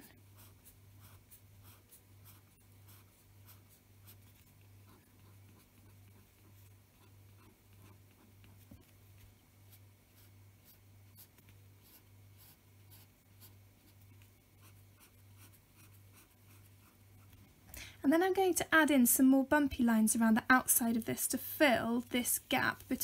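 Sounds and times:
pen scratching on paper: 0:00.0 - 0:08.9, 0:09.6 - 0:17.4
faint pulsing low hum: 0:00.0 - 0:23.0.

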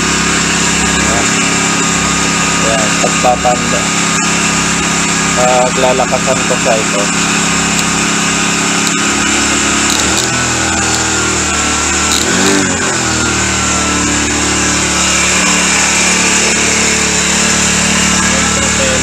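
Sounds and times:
small engine revving: 0:00.0 - 0:19.0.

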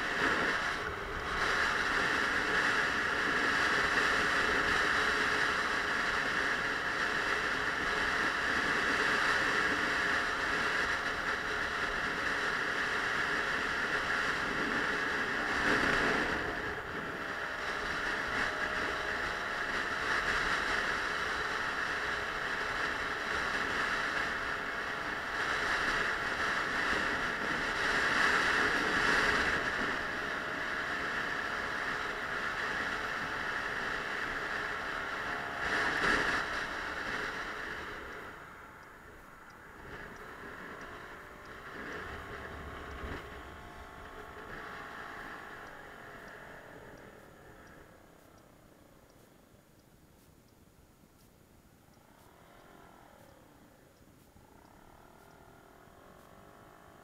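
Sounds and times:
wind rushing over microphone: 0:00.0 - 0:48.4
scooter engine hum: 0:00.0 - 0:57.0.

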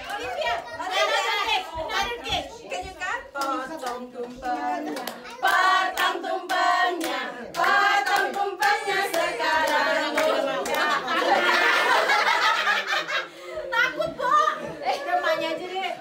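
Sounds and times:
people clapping in rhythm: 0:00.0 - 0:00.6, 0:02.8 - 0:12.6
women and children singing: 0:00.0 - 0:12.4.

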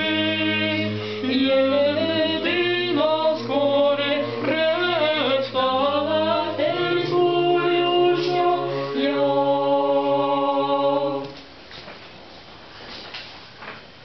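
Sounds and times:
choir singing unaccompanied chant: 0:00.0 - 0:11.4
faint room noise: 0:00.0 - 0:14.0.

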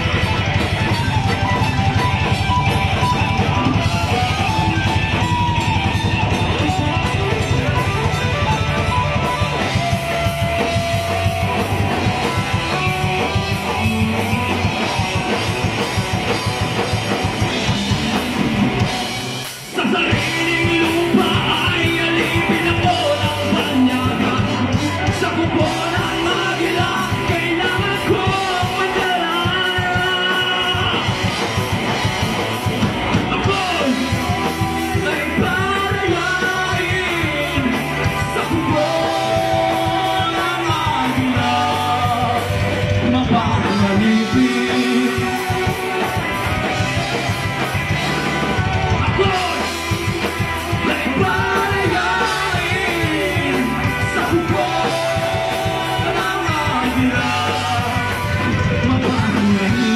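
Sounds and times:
bass guitar: 0:00.0 - 0:59.9
drum kit: 0:00.0 - 0:59.9
electric guitars: 0:00.0 - 0:59.9
person singing: 0:19.7 - 0:31.4, 0:33.1 - 0:46.4, 0:48.6 - 0:59.9.

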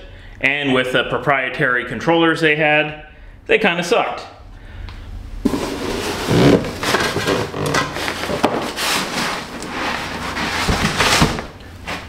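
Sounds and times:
foam and cardboard rubbing: 0:05.4 - 0:12.0.

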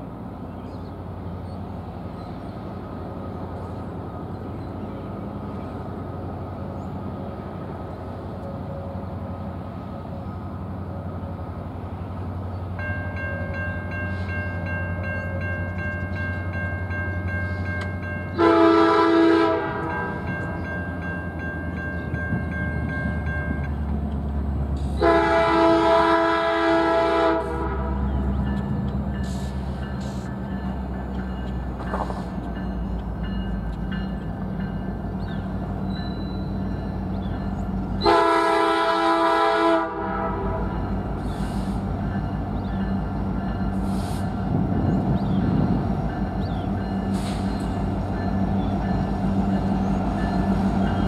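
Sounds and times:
diesel locomotive engine: 0:00.0 - 0:51.0
locomotive bell ringing: 0:12.8 - 0:24.6, 0:27.9 - 0:38.2, 0:42.0 - 0:43.9, 0:44.5 - 0:51.0
train air horn blasts: 0:18.4 - 0:20.2, 0:24.8 - 0:28.1, 0:38.0 - 0:41.8.

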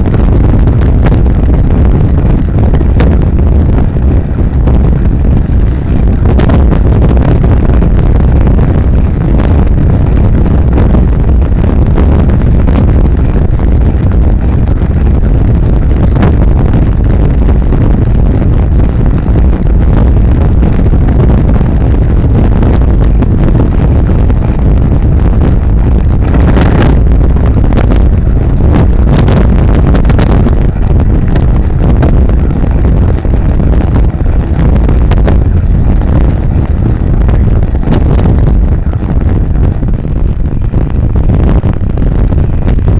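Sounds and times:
road noise: 0:00.0 - 0:42.9
wind buffeting microphone: 0:00.0 - 0:42.9.

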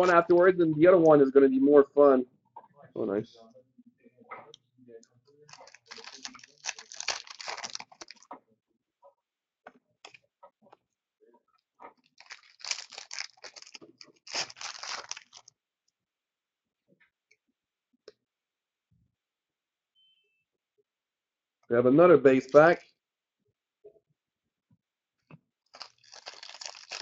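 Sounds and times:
wrappers tearing and crinkling: 0:00.0 - 0:00.3, 0:05.5 - 0:08.3, 0:12.1 - 0:15.5, 0:22.4 - 0:22.8, 0:25.7 - 0:27.0
cards clicking and rustling: 0:05.5 - 0:08.3, 0:12.2 - 0:15.4, 0:22.4 - 0:22.8, 0:25.7 - 0:27.0.

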